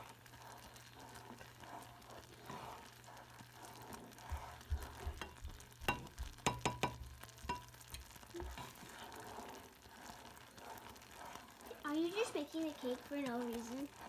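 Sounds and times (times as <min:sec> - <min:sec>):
boiling liquid bubbling in a saucepan: 0:00.0 - 0:14.0
spatula stirring and scraping: 0:00.0 - 0:14.0
spatula knocking against pan: 0:04.8 - 0:07.8.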